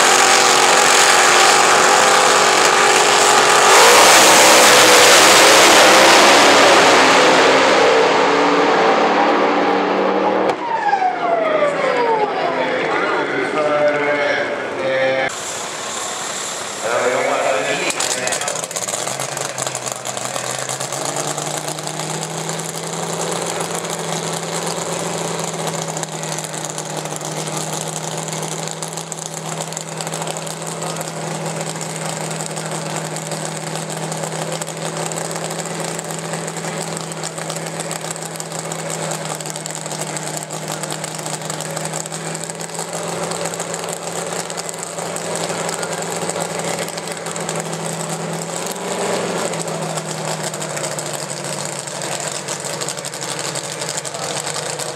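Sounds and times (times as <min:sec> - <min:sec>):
supercharged engine idling: 0:15.3 - 0:54.9.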